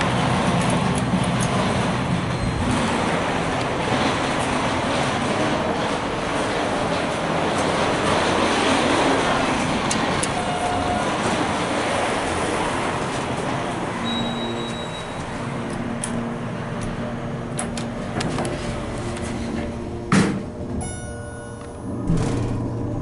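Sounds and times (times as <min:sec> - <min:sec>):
elevator rumbling: 0:00.0 - 0:23.0
low steady hum: 0:13.5 - 0:23.0.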